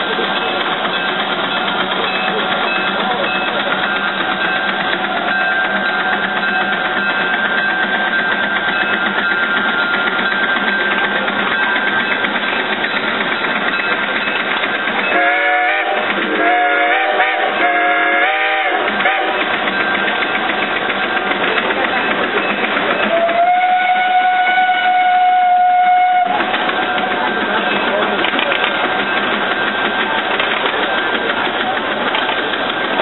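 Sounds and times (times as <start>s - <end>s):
steam engine exhaust chuffing: 0.0s - 33.0s
steam whistle blasts: 15.1s - 19.5s, 23.1s - 26.4s.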